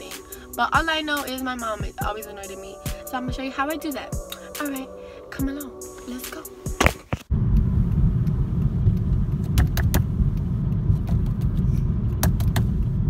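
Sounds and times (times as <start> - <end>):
car interior road rumble: 6.9 - 13.0.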